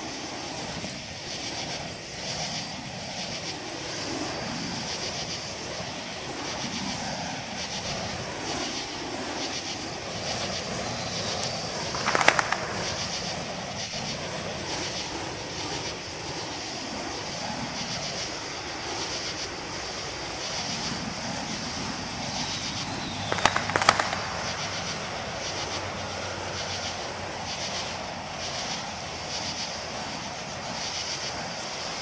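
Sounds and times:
fire hoop whooshing: 0.0s - 32.0s
steady rushing background: 0.0s - 32.0s
sharp cracks: 11.3s - 13.6s, 22.6s - 26.2s.

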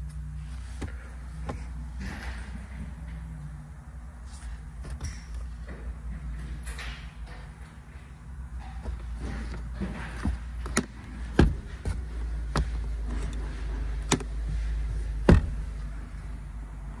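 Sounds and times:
steady low hum: 0.0s - 17.0s
clicks and knocks of car trim: 8.7s - 15.6s.

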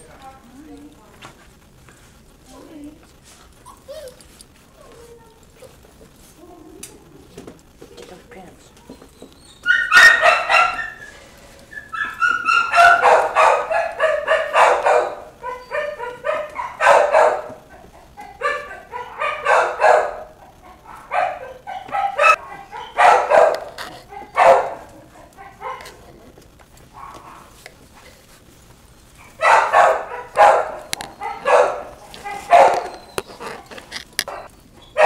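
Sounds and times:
puppies yapping: 3.6s - 5.0s, 8.8s - 26.2s, 26.8s - 27.6s, 29.0s - 35.0s.

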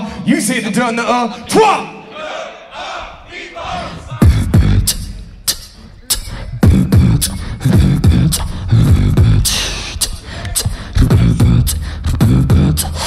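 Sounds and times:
beatboxing into a microphone: 4.2s - 13.0s.

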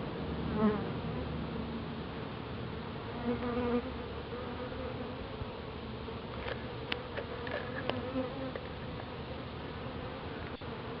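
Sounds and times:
bees buzzing: 2.8s - 11.0s.

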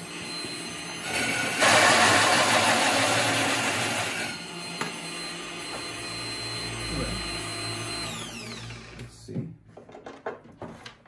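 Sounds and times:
drill press whine: 0.0s - 9.1s
hole saw grinding through wood: 1.0s - 4.4s.

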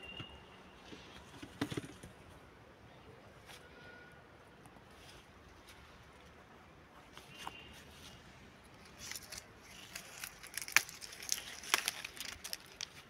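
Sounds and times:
leaves and twigs rustling: 7.0s - 13.0s.

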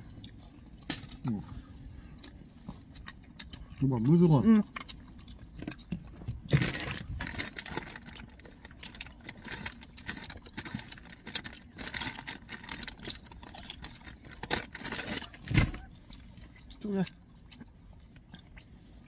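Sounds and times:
plastic packet rustling: 6.4s - 15.8s.

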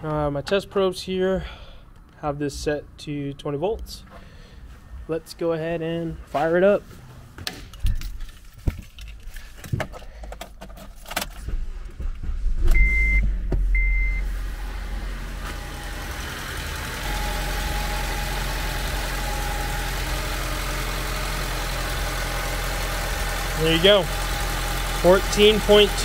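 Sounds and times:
car engine starting and idling: 10.9s - 26.0s.

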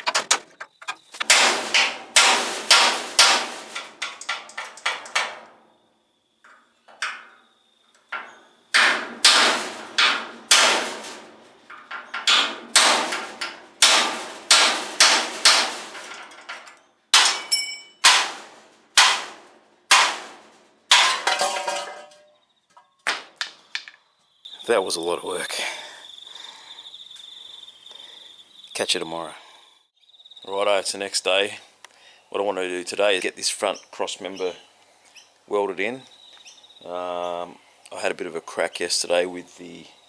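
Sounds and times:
hammer striking metal punch: 1.2s - 5.4s, 8.8s - 11.2s, 12.2s - 16.2s, 17.2s - 20.3s.

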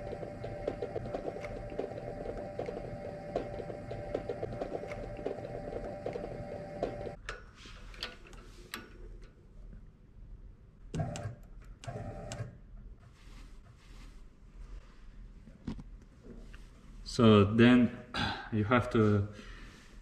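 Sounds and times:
machine drive whine and ticking: 0.0s - 7.2s.

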